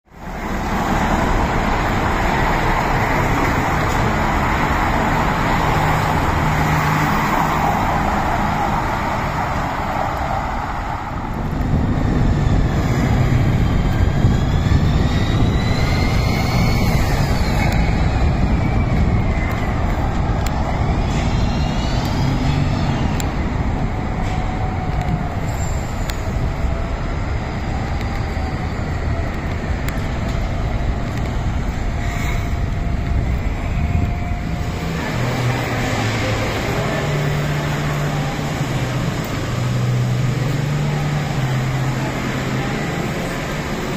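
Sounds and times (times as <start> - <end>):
traffic rumble: 0.0 - 43.9
high gliding squeals: 12.0 - 43.9.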